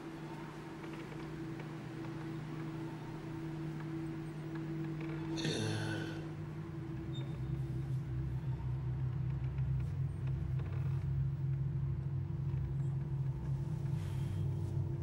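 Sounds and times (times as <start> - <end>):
low droning hum: 0.0 - 15.0.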